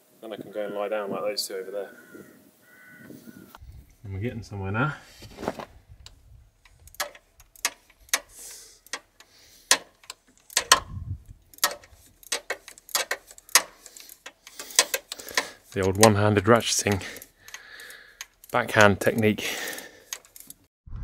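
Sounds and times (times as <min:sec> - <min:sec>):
ratchet wrench clicking: 0:06.6 - 0:20.6.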